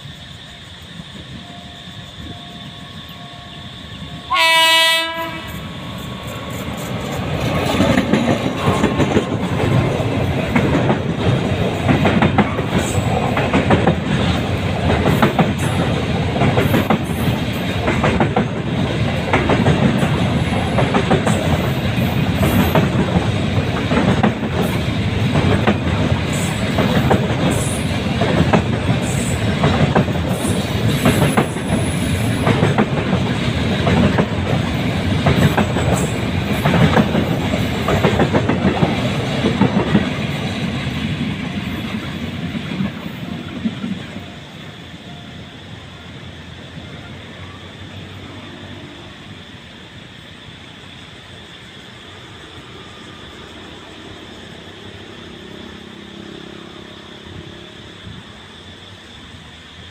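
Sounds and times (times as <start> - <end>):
train rumble: 0.0 - 59.9
train horn blast: 4.3 - 5.6
wheels clacking over rail joints: 4.4 - 44.3.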